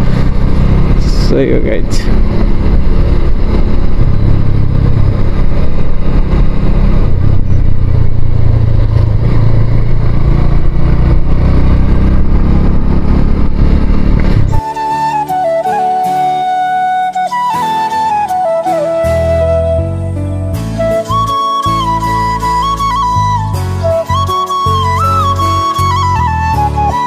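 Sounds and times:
motorcycle engine low rumble: 0:00.0 - 0:14.6.

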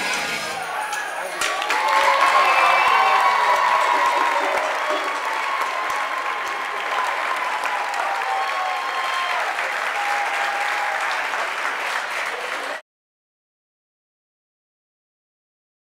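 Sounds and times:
audience applauding: 0:00.6 - 0:12.8.

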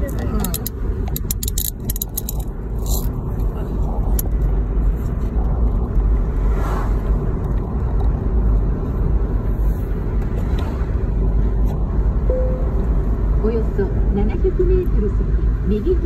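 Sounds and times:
road and tyre noise in car: 0:00.0 - 0:16.0.

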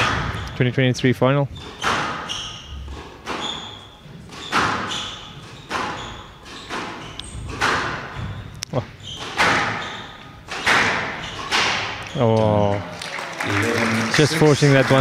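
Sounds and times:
squash ball hitting racquets and walls: 0:00.0 - 0:00.5, 0:01.5 - 0:12.2
shoes squeaking on court floor: 0:01.6 - 0:12.3.

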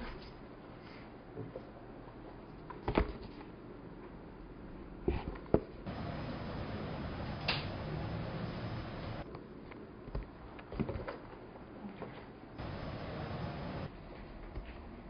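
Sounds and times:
background hiss: 0:05.9 - 0:09.2, 0:12.6 - 0:13.9.

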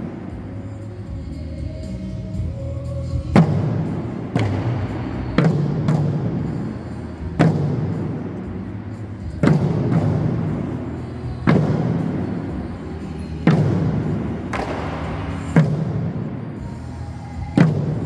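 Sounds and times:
heavy barrel drum beats echoing: 0:03.1 - 0:16.7, 0:17.3 - 0:18.0.

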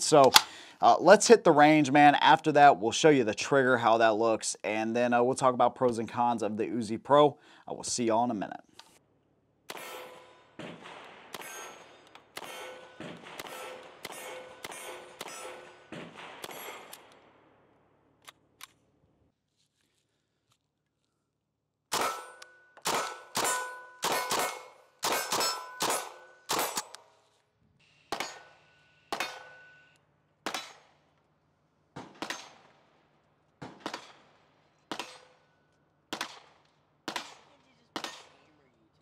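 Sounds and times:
pistol shots: 0:09.7 - 0:17.5, 0:21.9 - 0:27.0, 0:28.1 - 0:29.7, 0:30.4 - 0:31.1, 0:32.0 - 0:32.9, 0:33.6 - 0:35.5, 0:36.1 - 0:38.5.

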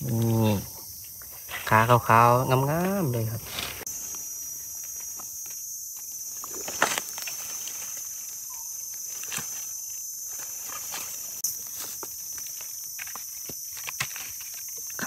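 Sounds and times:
high insect drone: 0:00.0 - 0:15.0
leaf litter rustling and crackling: 0:03.2 - 0:15.0.

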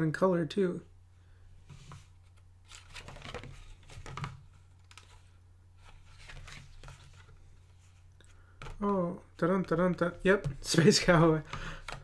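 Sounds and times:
book pages rustling: 0:01.7 - 0:08.9.

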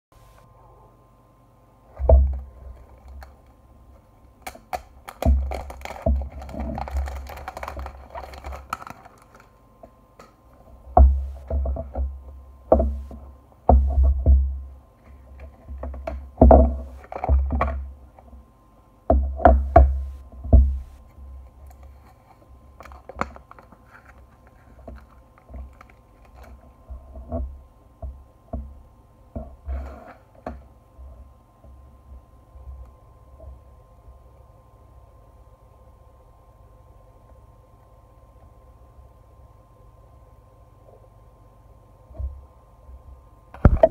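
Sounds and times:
dull low thumps: 0:11.0 - 0:11.4, 0:19.7 - 0:21.0.

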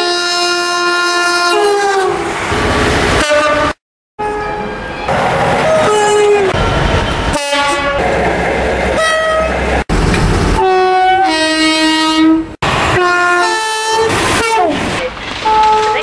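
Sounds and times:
train horn two-tone blasts: 0:00.0 - 0:02.2, 0:03.2 - 0:04.8, 0:05.7 - 0:06.5, 0:07.3 - 0:08.0, 0:10.6 - 0:14.8, 0:15.4 - 0:16.0
trains passing: 0:01.7 - 0:11.4, 0:12.6 - 0:16.0.

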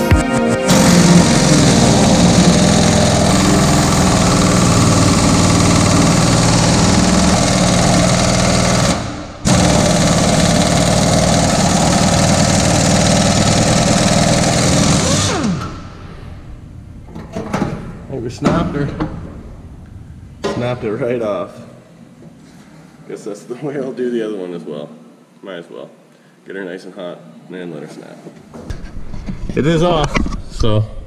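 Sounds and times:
pneumatic impact wrench hammering: 0:00.7 - 0:16.3.

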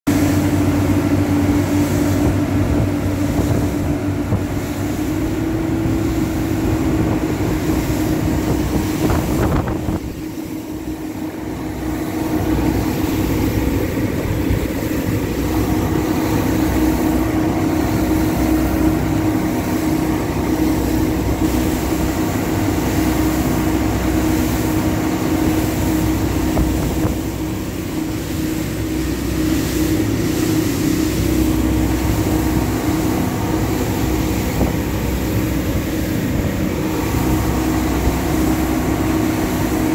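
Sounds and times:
outboard motors droning: 0:00.1 - 0:39.9
rushing wake water: 0:00.1 - 0:39.9
wind noise: 0:02.0 - 0:17.6, 0:31.4 - 0:39.9.

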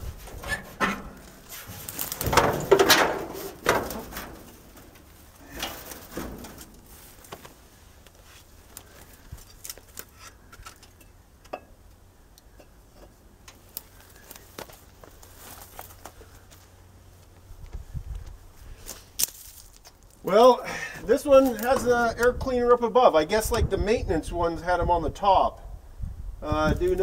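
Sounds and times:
metal hood hinges creaking: 0:00.0 - 0:07.5.

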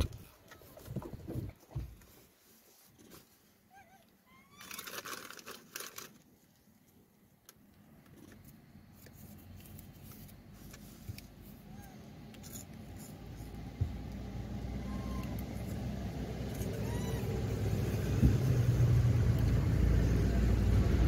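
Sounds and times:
crackling crinkling clicks: 0:04.0 - 0:11.3
vehicle engine rumble approaching: 0:09.2 - 0:21.0.

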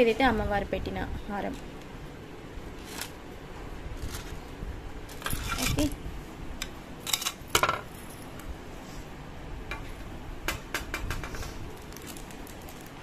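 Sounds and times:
plastic pouches crinkling: 0:11.7 - 0:13.0.

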